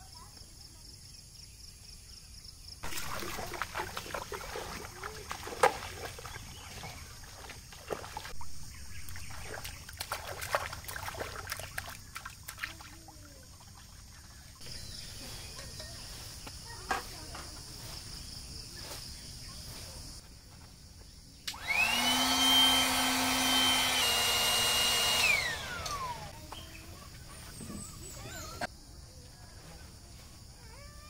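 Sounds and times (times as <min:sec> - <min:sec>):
children splashing in water: 0:02.8 - 0:08.4, 0:09.0 - 0:14.5
water trickling: 0:02.8 - 0:08.4, 0:09.0 - 0:14.5.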